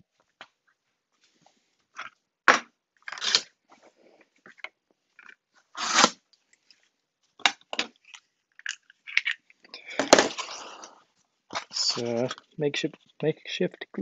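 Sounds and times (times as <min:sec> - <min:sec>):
cardboard tearing: 0:03.1 - 0:03.4, 0:05.7 - 0:06.2, 0:10.0 - 0:10.9.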